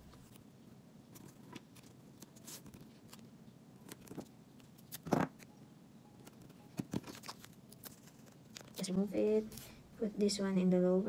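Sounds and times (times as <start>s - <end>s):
hands handling paper and tape: 1.1s - 5.5s, 6.2s - 9.8s.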